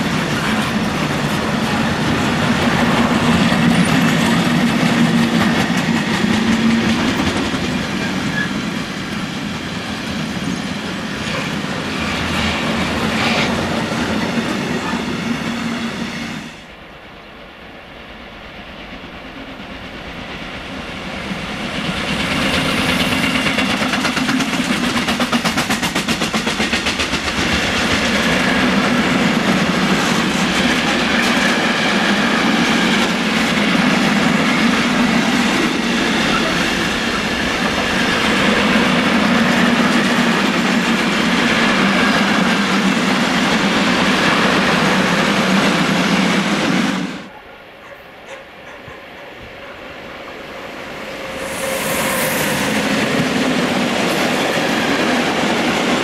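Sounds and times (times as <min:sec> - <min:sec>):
train wagons rolling on rails: 0:00.0 - 0:16.8, 0:17.6 - 0:56.0.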